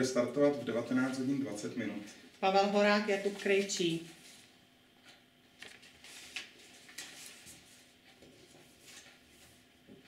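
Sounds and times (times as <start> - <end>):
paper ticks and rustles: 3.3 - 9.6.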